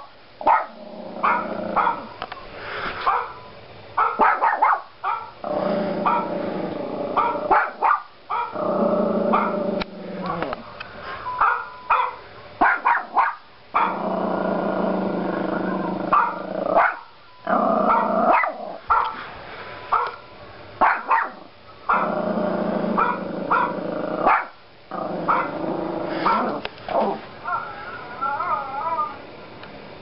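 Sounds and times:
puppy barking: 0:00.4 - 0:02.2, 0:03.0 - 0:03.4, 0:04.0 - 0:05.4, 0:06.0 - 0:06.3, 0:07.2 - 0:08.6, 0:09.3 - 0:09.6, 0:11.4 - 0:14.0, 0:16.1 - 0:17.1, 0:17.9 - 0:19.2, 0:19.9 - 0:20.2, 0:20.8 - 0:22.1, 0:23.0 - 0:24.6, 0:25.3 - 0:25.6, 0:26.2 - 0:26.5.

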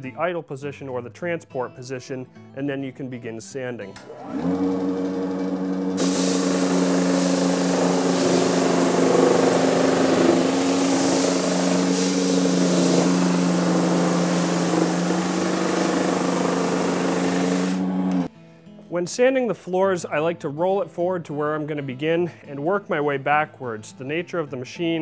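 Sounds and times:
floor sander motor hum: 0:04.0 - 0:18.3
sanding drum hissing on plywood: 0:05.2 - 0:18.3.

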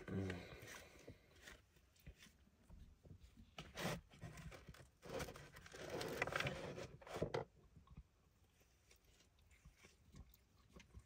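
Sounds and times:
cardboard box rustling and scraping: 0:03.6 - 0:07.4.

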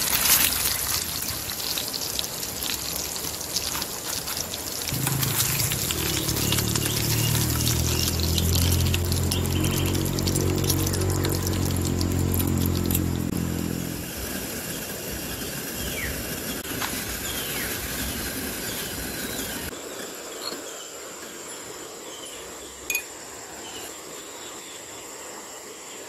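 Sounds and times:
meat sizzling in oil: 0:00.0 - 0:19.7.

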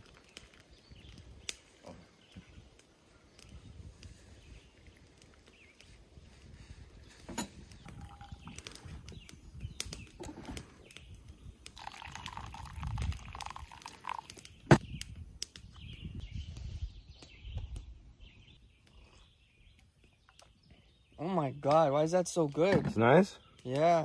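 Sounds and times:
birds chirping: 0:00.0 - 0:24.0
liquid trickling and dripping: 0:07.8 - 0:08.8, 0:11.6 - 0:14.6.

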